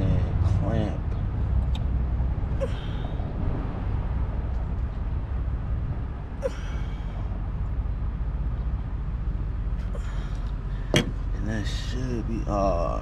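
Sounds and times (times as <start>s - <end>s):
vehicle rumble: 0.0s - 13.0s.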